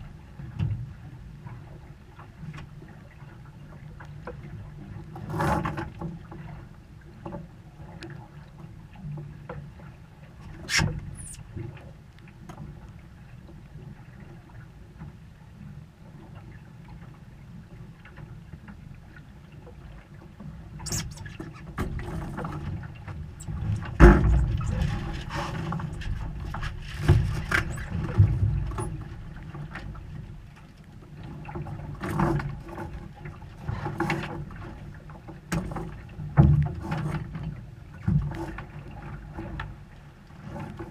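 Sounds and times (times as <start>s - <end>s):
water rushing against hull: 0.0s - 40.9s
knocks and clatter of lines: 23.4s - 29.0s.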